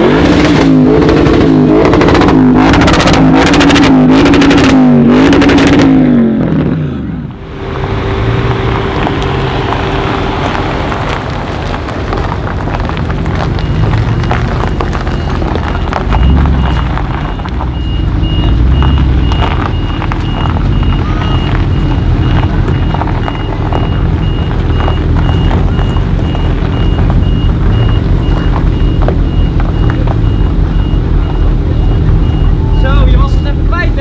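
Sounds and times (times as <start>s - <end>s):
car engine revving: 0.0s - 34.0s
high beep: 15.2s - 33.9s.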